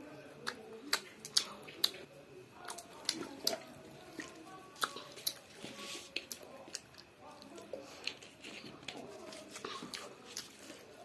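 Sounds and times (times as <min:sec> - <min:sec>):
child chewing with smacking: 0:00.3 - 0:11.0.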